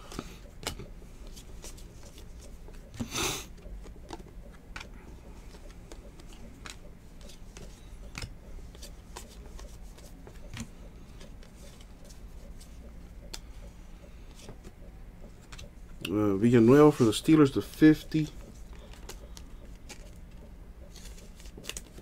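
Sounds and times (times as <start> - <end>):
cards flipped by hand: 3.8 - 12.7, 18.4 - 22.0
card rustle: 3.8 - 12.8, 16.8 - 22.0.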